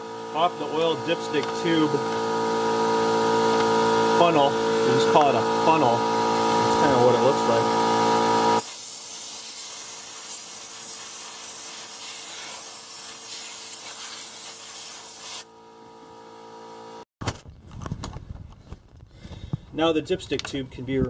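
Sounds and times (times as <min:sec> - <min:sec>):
compressed air blow gun hissing: 0:08.6 - 0:15.4.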